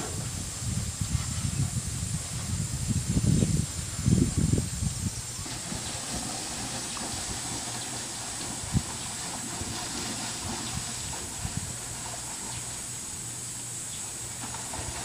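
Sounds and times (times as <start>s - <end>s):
microphone handling rumble: 0.0s - 12.6s
swimmer splashing: 5.2s - 15.0s.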